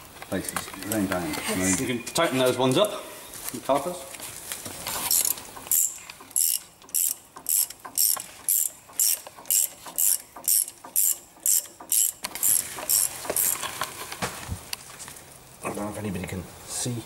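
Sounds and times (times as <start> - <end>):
socket ratchet wrench clicking: 5.1 - 13.6.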